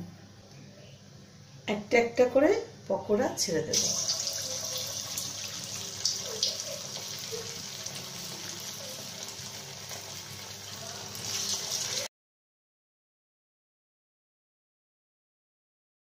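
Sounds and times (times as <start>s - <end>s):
food deep-frying in hot oil: 3.7s - 12.1s.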